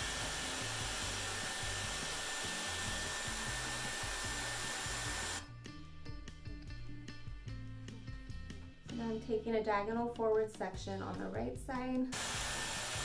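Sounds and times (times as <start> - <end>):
hair tool blowing air: 0.0 - 5.4, 12.1 - 13.0.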